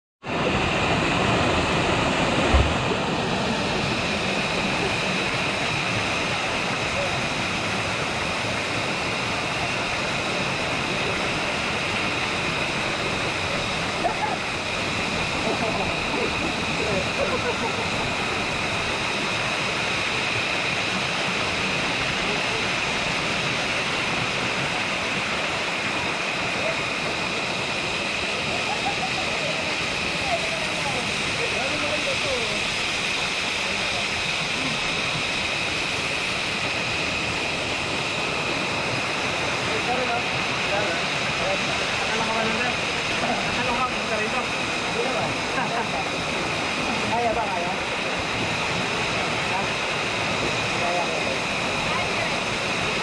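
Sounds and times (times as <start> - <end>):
waterfall pouring into pool: 0.3 - 53.0
brief low thump: 2.5 - 2.9
faint voices: 21.7 - 53.0.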